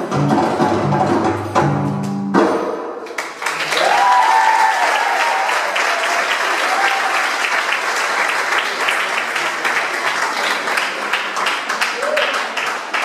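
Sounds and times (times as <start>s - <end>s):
drum solo: 0.0s - 3.0s
audience applause and cheering: 3.1s - 13.0s
person whooping: 3.8s - 7.2s.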